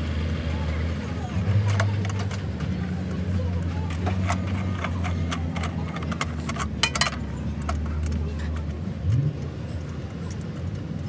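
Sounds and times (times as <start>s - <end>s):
metal wrench clinking on hub cap: 3.8s - 8.6s.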